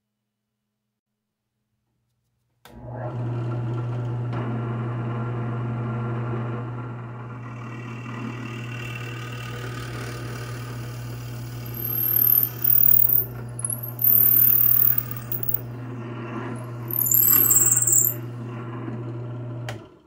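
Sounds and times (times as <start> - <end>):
drill press motor hum: 3.2 - 20.0
drill bit squealing in wood: 11.0 - 15.8, 16.4 - 18.3.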